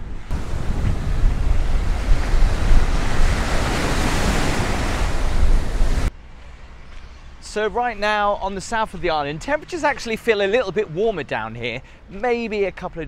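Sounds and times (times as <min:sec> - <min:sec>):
wind buffeting microphone: 0:00.0 - 0:06.1
small waves breaking on sand: 0:00.3 - 0:06.1.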